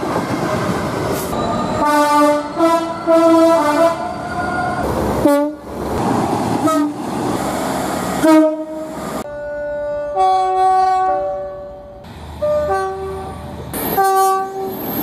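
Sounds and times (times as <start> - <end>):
rail noise: 0.0 - 15.0
two-tone locomotive horn blasts: 1.8 - 5.6, 6.6 - 7.0, 8.2 - 14.8.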